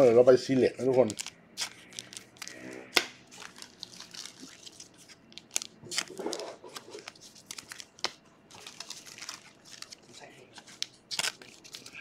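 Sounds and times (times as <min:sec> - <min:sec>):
foil wrapper crinkling: 0:00.9 - 0:02.6, 0:03.3 - 0:12.0.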